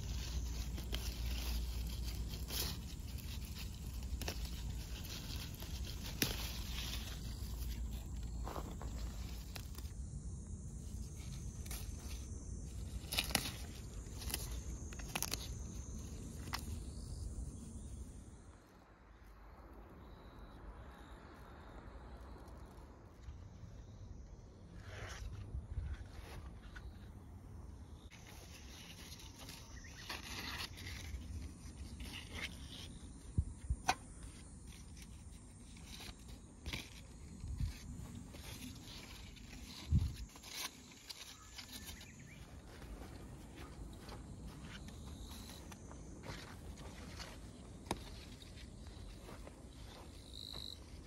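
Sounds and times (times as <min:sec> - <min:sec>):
leaves clicking and rustling: 0:00.0 - 0:17.8, 0:28.1 - 0:33.3, 0:34.2 - 0:51.0.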